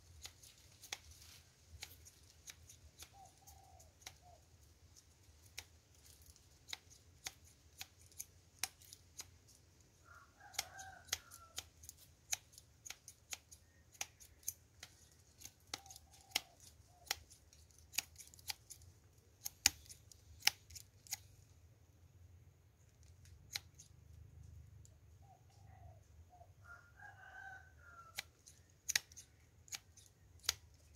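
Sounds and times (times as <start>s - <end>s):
sharp irregular clicks: 10.5s - 21.3s, 28.2s - 30.9s.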